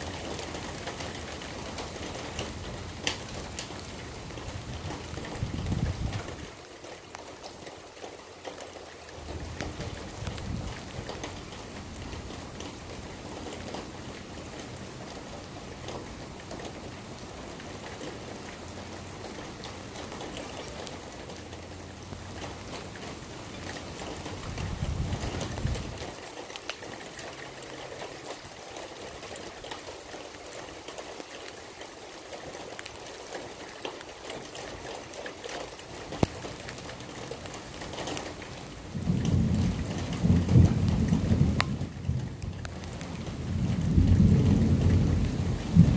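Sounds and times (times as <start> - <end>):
steady rain falling: 0.0 - 45.9
thunder rumble: 4.6 - 6.5, 24.1 - 26.2, 38.9 - 45.9.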